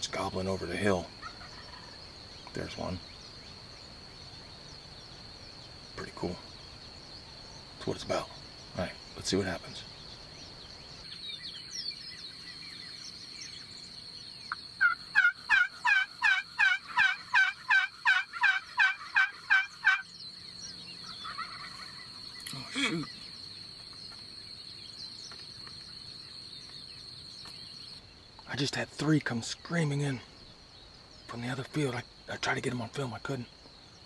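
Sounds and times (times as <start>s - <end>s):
wild turkey yelping: 1.2s - 2.0s, 14.5s - 20.1s, 20.7s - 23.9s.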